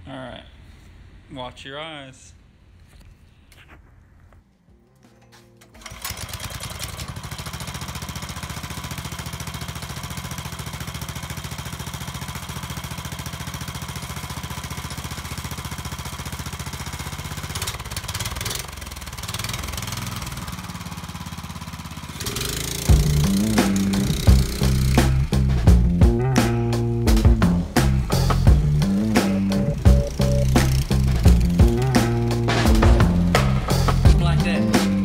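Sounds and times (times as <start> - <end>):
small engine idling: 5.6 - 34.0
engine revving: 16.2 - 35.0.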